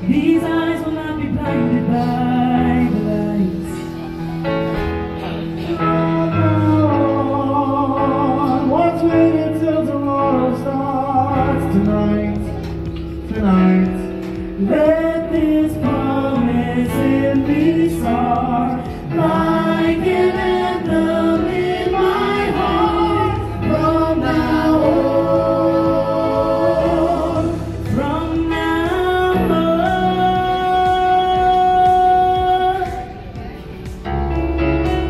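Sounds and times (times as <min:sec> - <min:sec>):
backing music: 0:00.0 - 0:35.0
voices singing in harmony: 0:05.4 - 0:11.8, 0:13.4 - 0:33.3.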